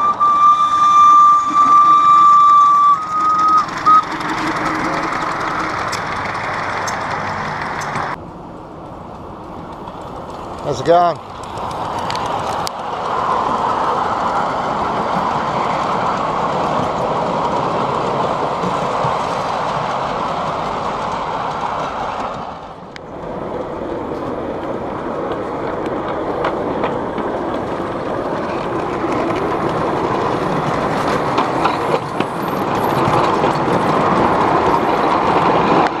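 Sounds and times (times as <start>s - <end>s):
train wheels rolling on rails: 0.0s - 36.0s.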